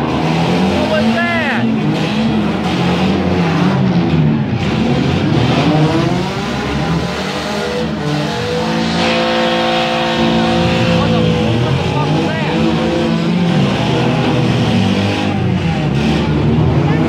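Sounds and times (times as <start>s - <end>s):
car engines revving: 0.0s - 17.0s
steady held tone: 8.4s - 13.6s.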